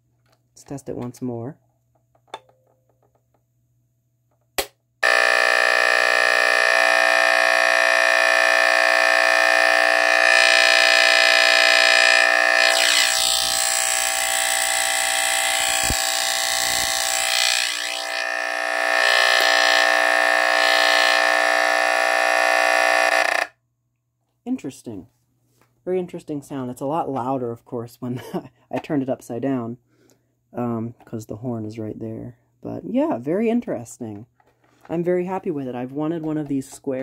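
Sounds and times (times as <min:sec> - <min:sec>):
smoke detector horn buzzing: 0:05.0 - 0:23.5.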